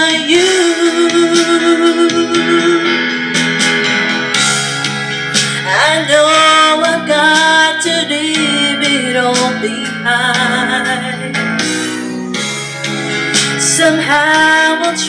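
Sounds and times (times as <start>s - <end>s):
woman singing into microphone: 0.0s - 3.3s, 5.3s - 11.7s, 13.4s - 15.0s
pop ballad backing track: 0.0s - 15.0s.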